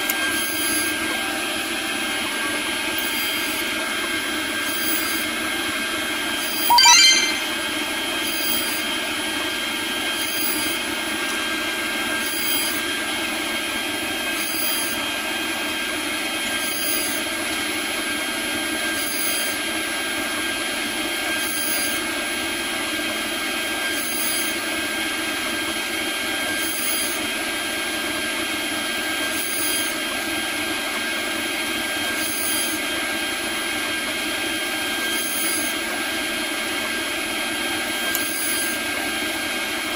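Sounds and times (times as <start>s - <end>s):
cnc router spindle whine: 3.0s - 5.3s.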